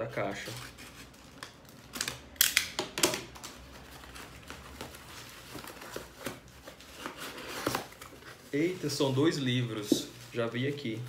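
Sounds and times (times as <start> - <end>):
cardboard flaps scraping and rustling: 3.7 - 11.0
cardboard tearing: 5.4 - 9.0.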